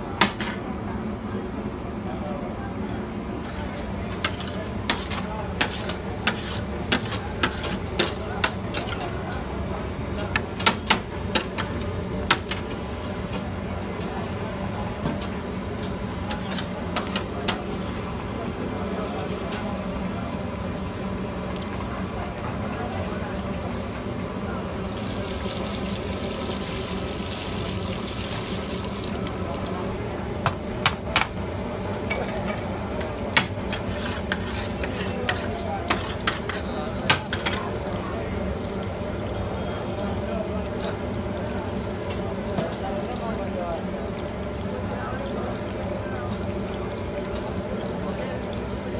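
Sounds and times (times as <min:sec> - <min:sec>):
steady background hum: 0:00.0 - 0:48.9
frying sizzle: 0:03.4 - 0:48.9
metal spatula scraping griddle: 0:04.2 - 0:08.2, 0:33.7 - 0:36.8
metal ladle scraping pan: 0:33.7 - 0:36.7.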